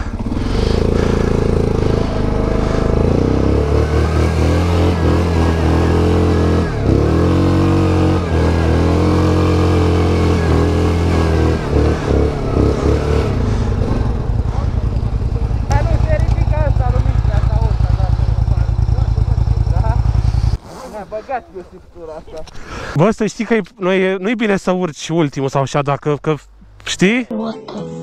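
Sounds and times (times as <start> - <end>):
atv engine revving under load: 0.0 - 21.3.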